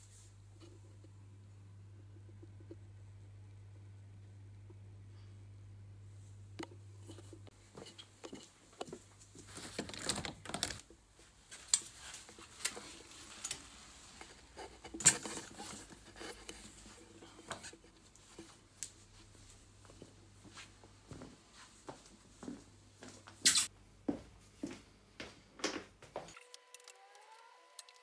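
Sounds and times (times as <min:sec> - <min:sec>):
rustling: 0:09.1 - 0:19.4.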